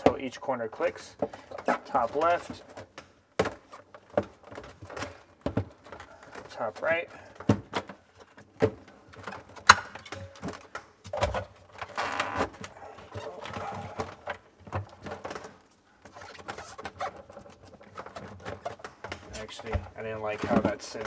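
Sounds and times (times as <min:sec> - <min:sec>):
sharp plastic clicks and knocks: 0:00.0 - 0:21.0
plastic scraping and rubbing: 0:07.7 - 0:21.0.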